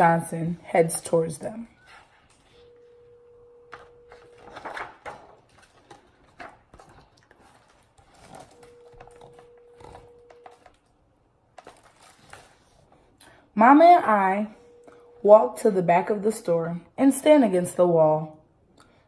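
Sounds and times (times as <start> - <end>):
faint steady tone: 1.6 - 4.5, 14.4 - 15.8
book pages rustling: 3.7 - 10.8, 11.5 - 13.0.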